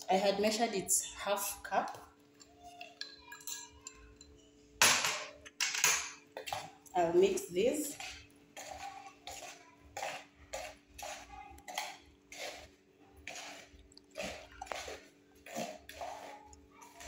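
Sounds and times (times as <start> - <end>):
spoon scraping ceramic bowl: 6.4 - 17.0.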